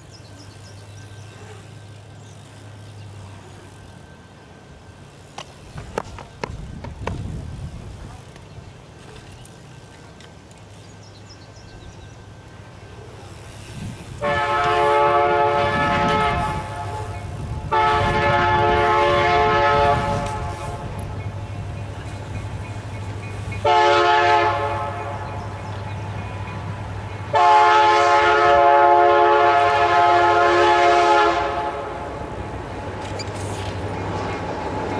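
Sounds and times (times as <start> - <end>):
train rumble: 0.0 - 34.9
locomotive horn blasts: 14.1 - 20.8, 23.6 - 25.4, 27.3 - 32.0.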